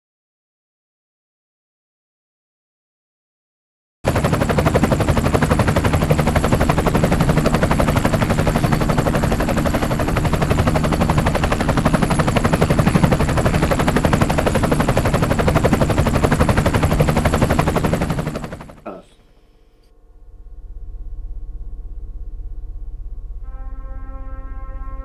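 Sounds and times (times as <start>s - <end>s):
helicopter rotor chop: 4.1s - 19.1s
helicopter engine drone: 4.1s - 25.0s.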